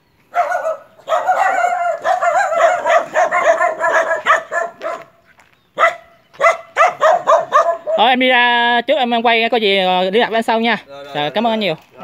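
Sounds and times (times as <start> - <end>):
dog barking high-pitched: 0.3 - 5.2, 5.8 - 8.2.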